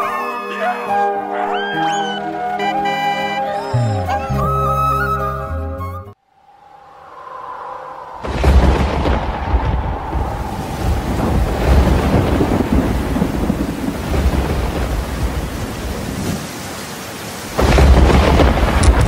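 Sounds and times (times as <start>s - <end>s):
rolling thunder: 6.5s - 16.5s, 17.5s - 19.0s
heavy rain: 8.1s - 19.0s.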